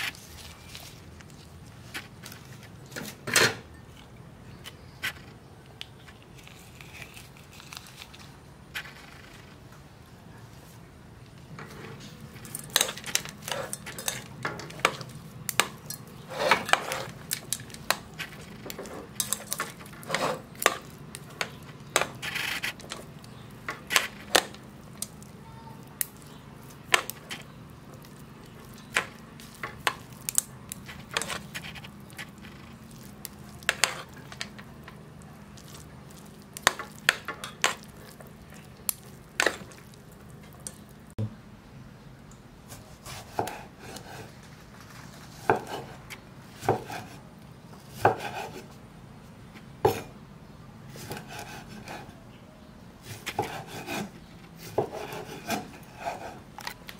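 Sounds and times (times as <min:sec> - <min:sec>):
chopsticks scraping a steel pot: 0:11.7 - 0:25.2, 0:25.8 - 0:35.0, 0:53.1 - 0:56.7.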